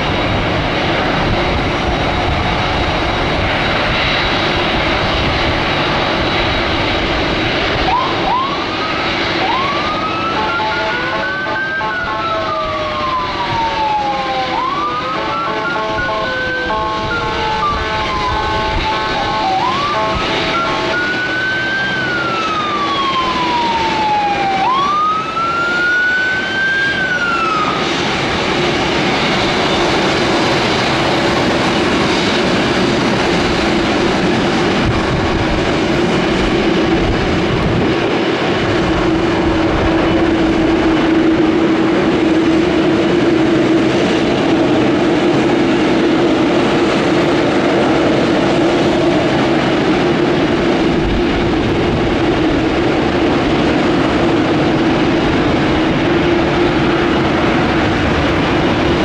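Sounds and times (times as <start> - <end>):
jet engines roaring: 0.0 - 59.0
siren wailing: 7.6 - 38.1.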